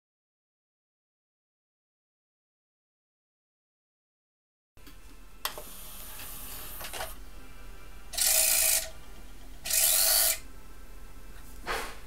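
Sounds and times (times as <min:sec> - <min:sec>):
disc tray motor: 0:05.5 - 0:07.2, 0:08.1 - 0:09.0, 0:09.6 - 0:10.4.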